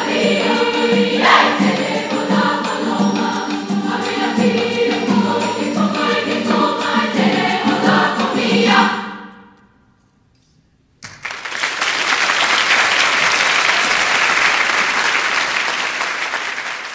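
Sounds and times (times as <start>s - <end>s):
choir singing with piano and guitar: 0.0s - 9.4s
audience applause: 11.0s - 16.9s.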